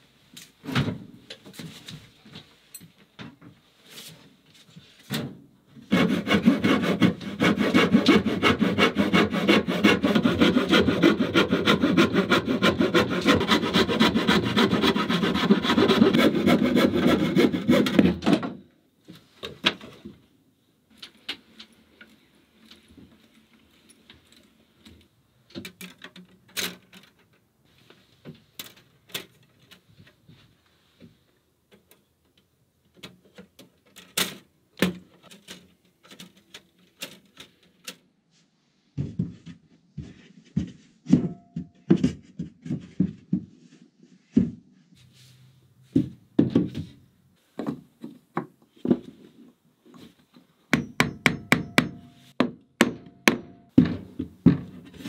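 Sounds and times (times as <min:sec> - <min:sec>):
hammer striking wood: 0:50.7 - 0:54.8.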